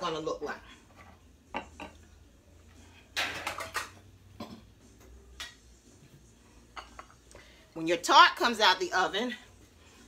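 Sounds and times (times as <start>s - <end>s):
dishes clinking: 1.5s - 2.0s, 3.1s - 4.7s, 6.7s - 7.2s
cookware clattering: 3.1s - 4.7s.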